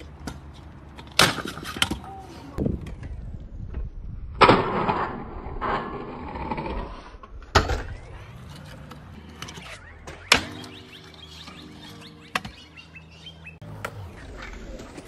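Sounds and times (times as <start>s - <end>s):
scooter landing clack: 1.0s - 2.1s, 7.4s - 10.8s
scooter wheels rolling on concrete: 4.9s - 15.0s.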